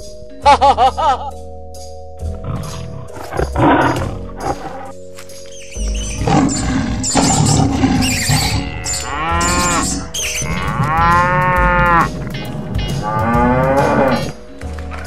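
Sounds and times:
cartoon cow mooing: 6.2s - 12.2s, 12.8s - 14.3s.

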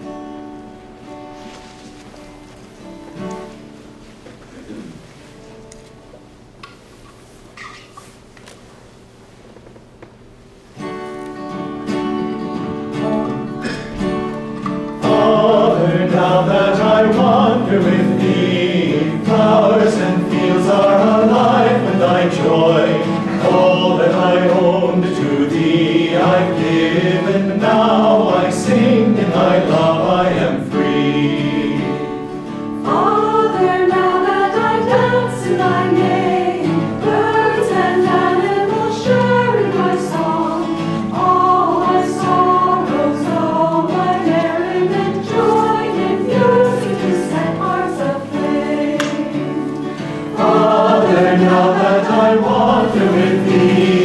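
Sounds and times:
acoustic guitar: 0.0s - 54.0s
mixed choir singing: 12.9s - 54.0s.

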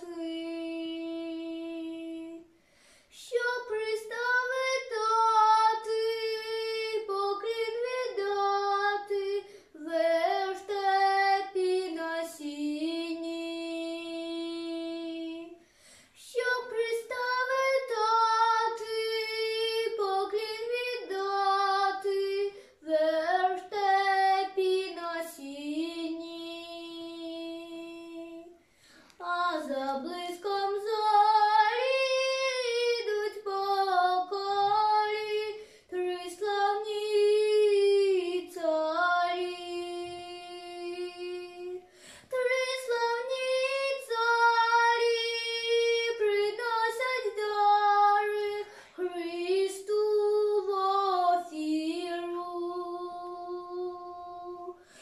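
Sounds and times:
girl singing unaccompanied: 0.0s - 55.0s.

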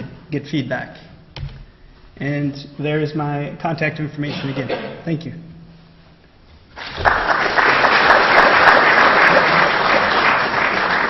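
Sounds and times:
audience applauding: 6.8s - 11.0s.

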